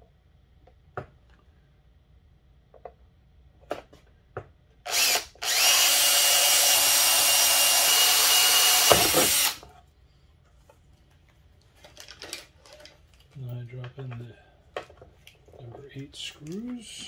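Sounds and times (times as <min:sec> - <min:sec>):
cordless drill boring plastic: 0:04.9 - 0:09.6.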